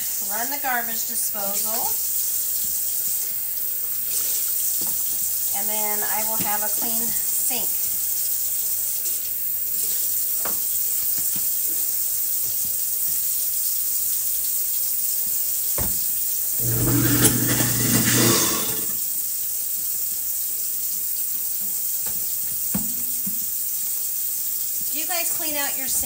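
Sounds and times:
faucet running water into sink: 16.4 - 19.0
garbage disposal humming: 16.6 - 19.0.

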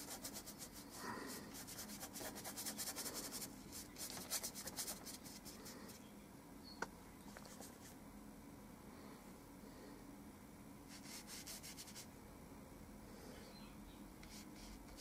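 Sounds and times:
paintbrush scratching on paper: 0.0 - 5.8, 10.9 - 12.1, 14.2 - 15.0.

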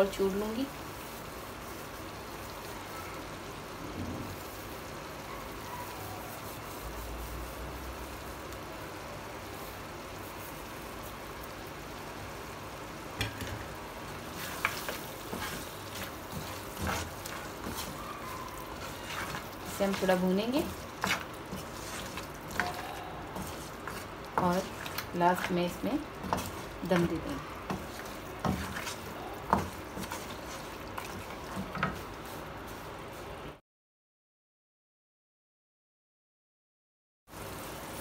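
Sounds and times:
meat sizzling in wok: 0.0 - 33.4, 37.3 - 38.0
wooden spoon scraping pan: 14.2 - 32.9.

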